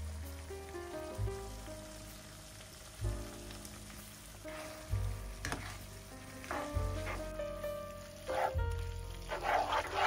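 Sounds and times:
pasta sizzling in frying pan: 0.0s - 10.0s
soft background music: 0.0s - 10.0s
spatula scraping a pan: 5.4s - 7.3s, 8.2s - 10.0s.

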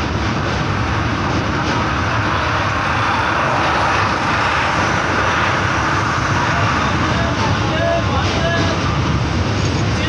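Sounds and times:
train wheels rumbling on bridge: 0.0s - 10.0s.

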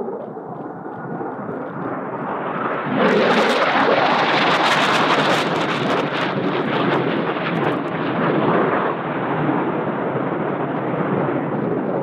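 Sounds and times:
faint crackles: 0.0s - 2.8s.

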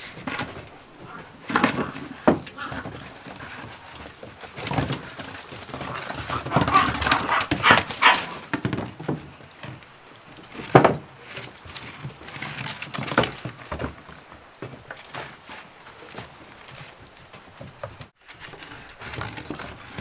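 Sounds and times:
paws scrabbling on wooden boards: 0.0s - 20.0s
puppy vocal sounds: 0.8s - 8.5s.

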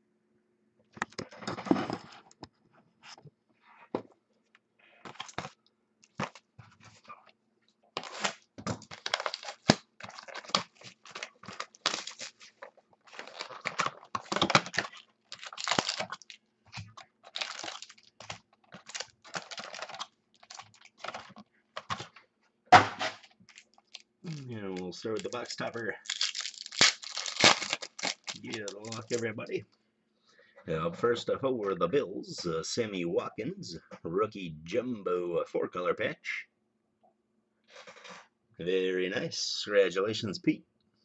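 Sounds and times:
plastic shrink-wrap tearing: 8.0s - 16.4s, 17.2s - 21.3s, 23.5s - 29.3s
packaging crinkling: 8.0s - 22.2s, 23.2s - 29.4s.

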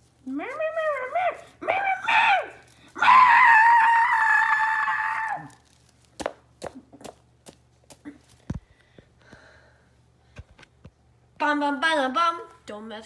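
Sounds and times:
high-pitched scream: 1.1s - 5.6s.

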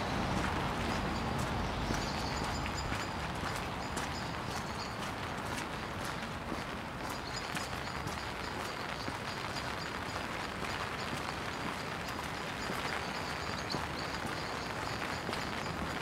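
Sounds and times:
footsteps on wet paving: 0.1s - 16.0s.

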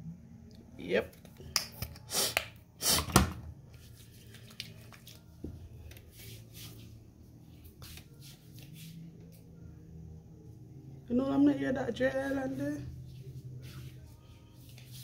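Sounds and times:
hands rubbing lotion into skin: 3.8s - 5.2s.

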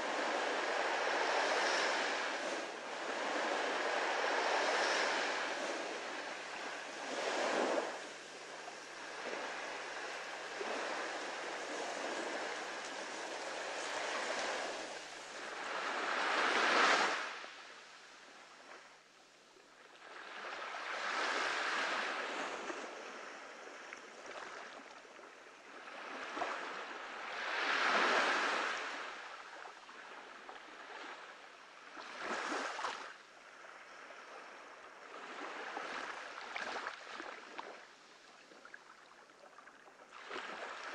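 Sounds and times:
surf washing onto beach: 0.0s - 18.6s, 26.2s - 29.9s.

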